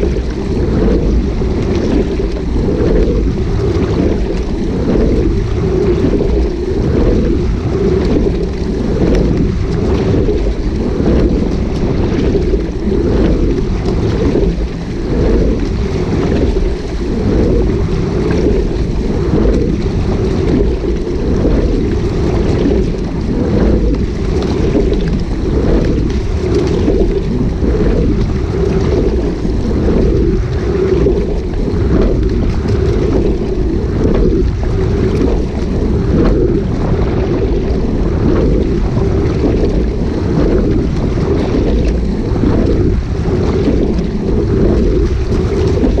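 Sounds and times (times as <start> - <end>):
water rushing along hull: 0.0 - 46.0
wind buffeting microphone: 0.0 - 46.0.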